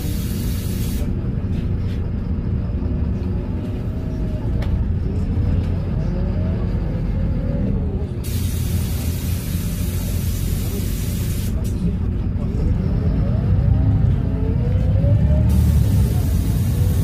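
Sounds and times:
bus engine rumbling: 0.0 - 17.0.

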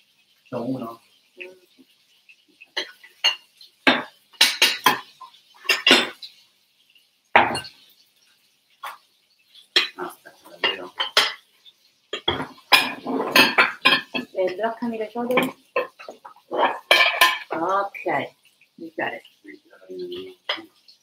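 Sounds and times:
crockery and cutlery clattering: 2.8 - 6.3, 7.4 - 7.8, 9.7 - 11.5, 12.1 - 14.6, 15.3 - 17.7.

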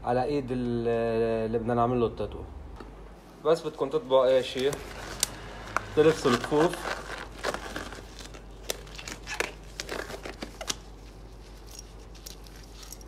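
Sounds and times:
gloves crinkling and snapping: 3.7 - 13.0.

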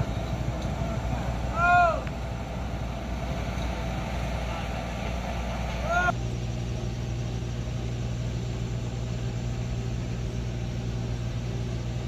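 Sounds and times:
diesel truck engine idling: 0.0 - 12.0.

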